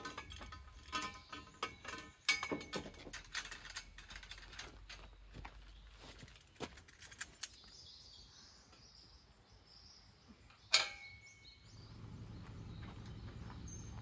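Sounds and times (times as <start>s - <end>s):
metal scaffolding pipes clinking: 0.0s - 5.3s, 10.7s - 11.4s.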